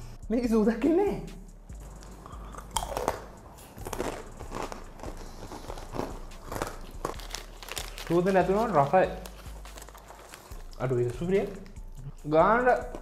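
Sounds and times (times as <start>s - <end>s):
chips crunching while chewed: 1.8s - 11.8s.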